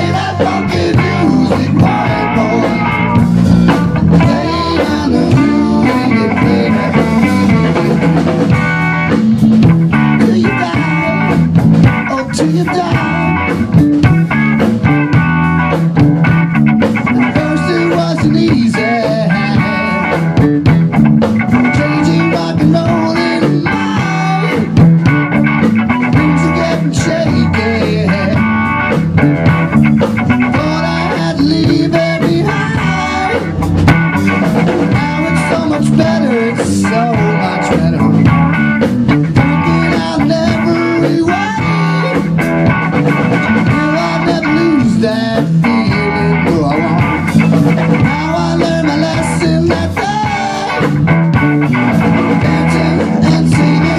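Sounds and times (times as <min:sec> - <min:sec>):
bass guitar: 0:00.0 - 0:53.9
drum kit: 0:00.0 - 0:53.9
electric guitar bending notes: 0:00.0 - 0:53.9.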